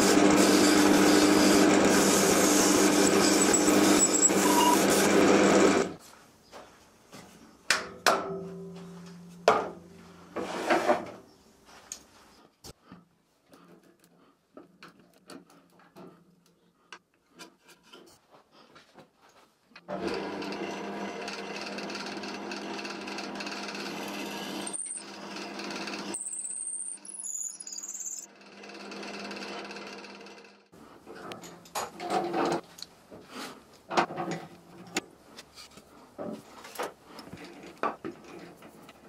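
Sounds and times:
wood lathe humming: 0:00.0 - 0:06.0, 0:19.9 - 0:26.2, 0:28.3 - 0:30.5
high squeals: 0:02.7 - 0:05.0, 0:26.2 - 0:28.3.

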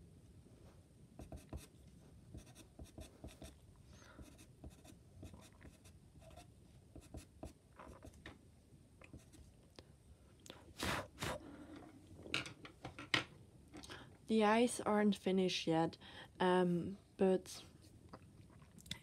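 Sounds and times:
pencil scratching on paper: 0:01.2 - 0:01.7, 0:02.3 - 0:03.6, 0:04.2 - 0:08.2.

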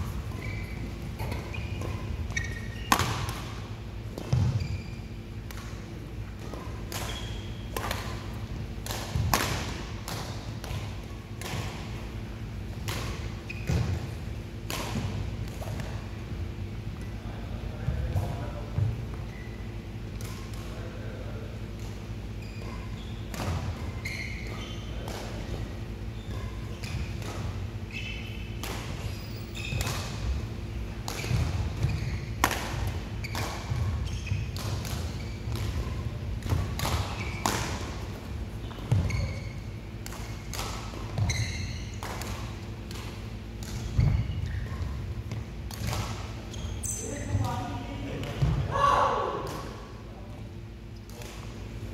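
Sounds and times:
shoes squeaking on court: 0:00.0 - 0:20.8, 0:21.6 - 0:48.5
racket hitting shuttlecock: 0:00.1 - 0:04.8, 0:05.4 - 0:16.1, 0:21.8 - 0:48.7, 0:51.0 - 0:51.6.

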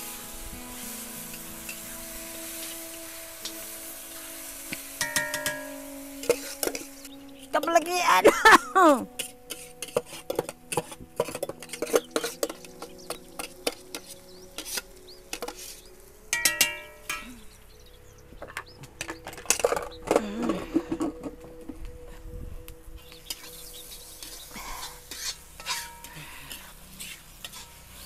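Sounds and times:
spoon clinking on metal bowl: 0:16.3 - 0:17.2.

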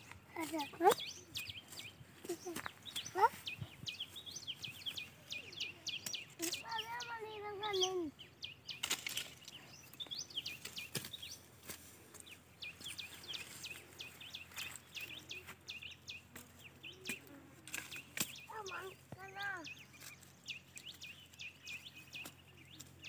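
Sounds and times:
small birds chirping: 0:00.0 - 0:23.0
child's high-pitched voice: 0:00.3 - 0:01.1, 0:02.2 - 0:03.6, 0:05.2 - 0:08.2, 0:18.5 - 0:19.8.

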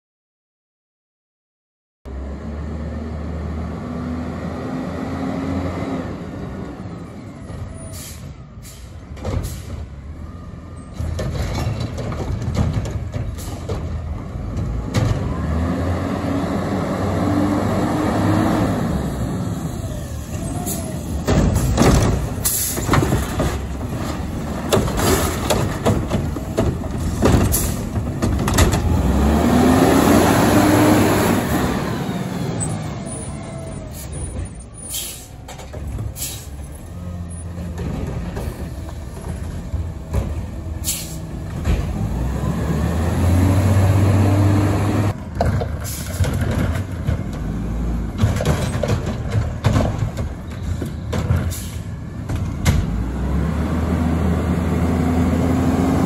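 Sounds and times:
truck engine revving: 0:02.1 - 0:09.2, 0:09.8 - 0:56.0
air brakes hissing: 0:07.8 - 0:09.9, 0:22.4 - 0:22.9, 0:33.8 - 0:35.5, 0:36.1 - 0:36.7, 0:40.8 - 0:41.3, 0:51.5 - 0:52.0.

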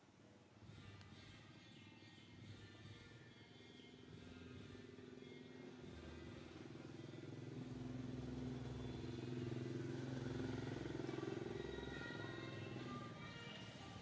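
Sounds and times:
vehicle engine droning: 0:04.2 - 0:14.0.

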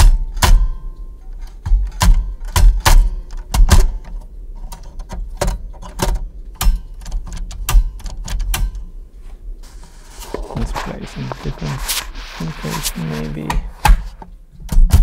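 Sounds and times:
continuous rasping noise: 0:09.6 - 0:14.3.

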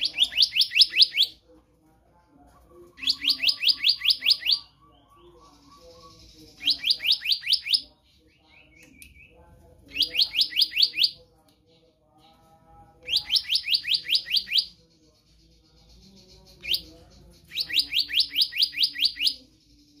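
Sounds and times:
bird singing whistled notes: 0:15.6 - 0:20.0.

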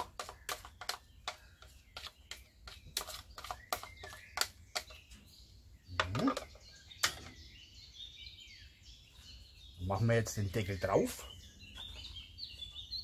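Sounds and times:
metal spoon scraping bowl: 0:00.0 - 0:05.0
birds chirping faintly: 0:00.0 - 0:13.0.

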